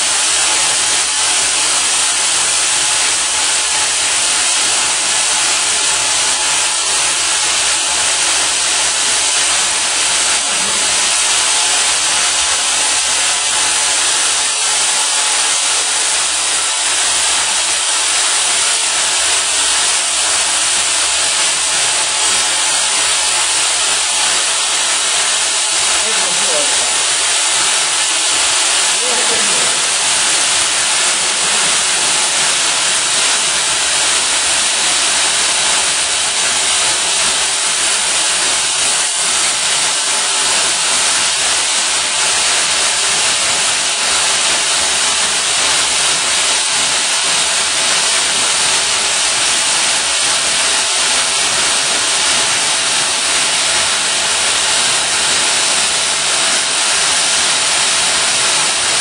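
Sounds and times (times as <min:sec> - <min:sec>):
welding machine hissing: 0:00.0 - 0:59.0.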